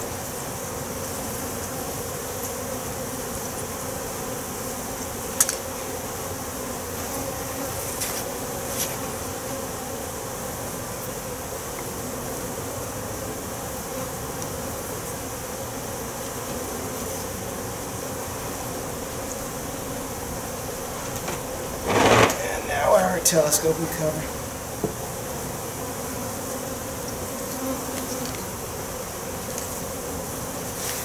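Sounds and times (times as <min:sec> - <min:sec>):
bees buzzing: 0:00.0 - 0:31.0
wooden hive cover clicks: 0:20.9 - 0:22.8
sharp knock: 0:21.2 - 0:22.6.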